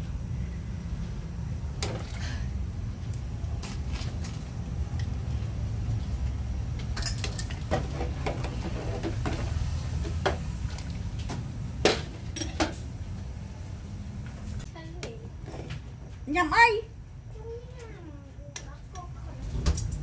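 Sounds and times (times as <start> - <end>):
steady low rumble: 0.0 - 7.0
dishes clinking and knocking: 6.8 - 10.5, 11.8 - 12.8.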